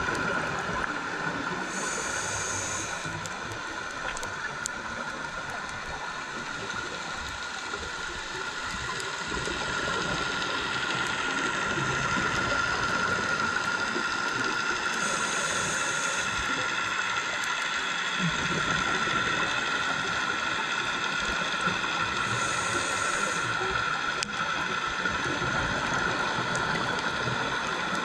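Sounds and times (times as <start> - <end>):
underwater hiss and whine: 0.0 - 28.0.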